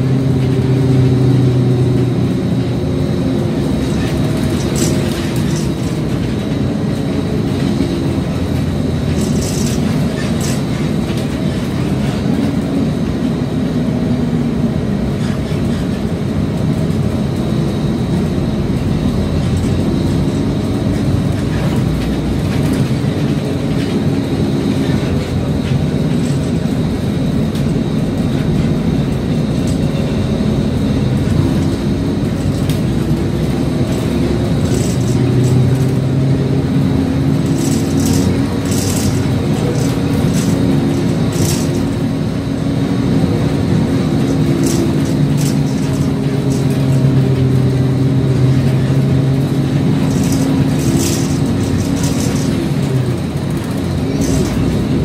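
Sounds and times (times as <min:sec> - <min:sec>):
bus engine running: 0:00.0 - 0:55.0
road rumble: 0:00.0 - 0:55.0
sharp rattles: 0:33.9 - 0:35.9, 0:37.3 - 0:42.0, 0:48.5 - 0:55.0.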